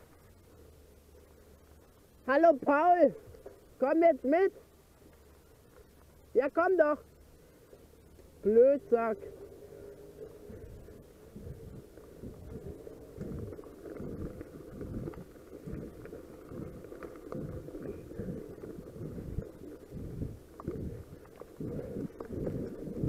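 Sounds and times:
bike tyres rumbling on gravel: 0.0 - 23.0
wind buffeting microphone: 9.2 - 23.0.

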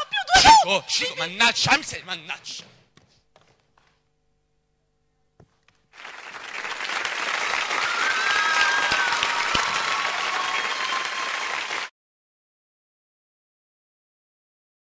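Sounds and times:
audience applauding: 5.8 - 11.9.

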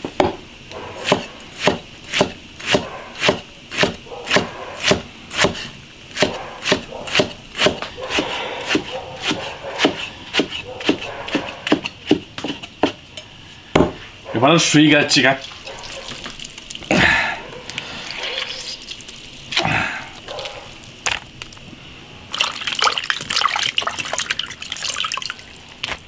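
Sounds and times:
cleaver chopping on wooden block: 1.0 - 5.6, 6.2 - 13.0.

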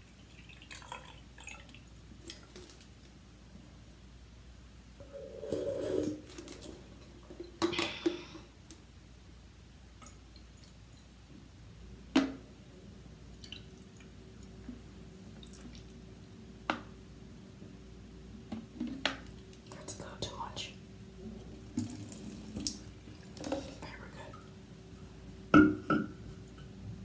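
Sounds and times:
water trickling into a can: 0.0 - 2.9, 21.6 - 23.8.

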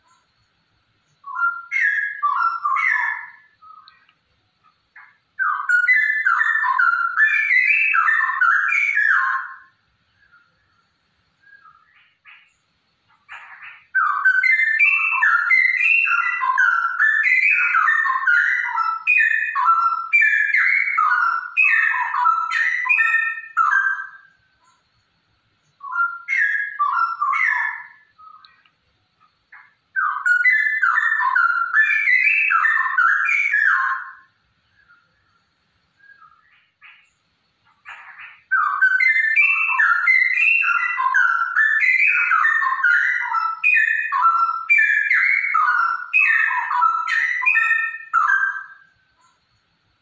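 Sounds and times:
bird singing whistled notes: 0.0 - 50.0.

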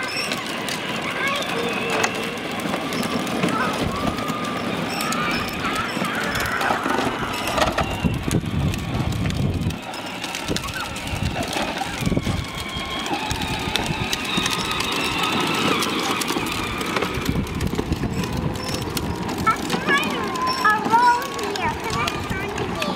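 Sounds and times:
faint motor whine: 0.0 - 22.9
plastic wheels rumbling on concrete: 0.0 - 22.9.

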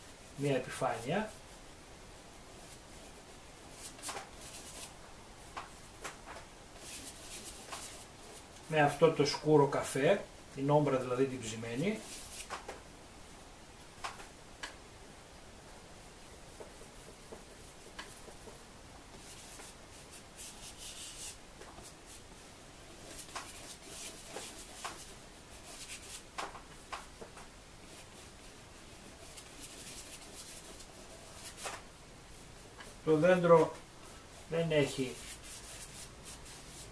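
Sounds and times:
paintbrush scratching on canvas: 2.6 - 5.0, 6.8 - 8.4, 11.8 - 12.5, 19.2 - 22.3, 22.9 - 26.3, 27.8 - 31.8, 34.4 - 36.9.

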